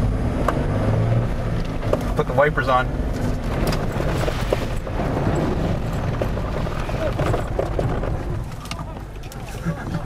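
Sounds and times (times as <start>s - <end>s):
engine and tyres rumbling: 0.0s - 10.0s
water splashing on car: 2.0s - 10.0s.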